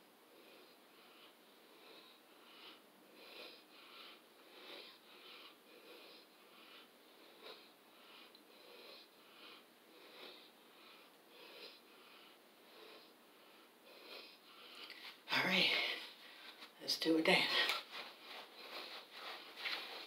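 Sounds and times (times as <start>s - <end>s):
woman breathing heavily: 0.1s - 20.0s.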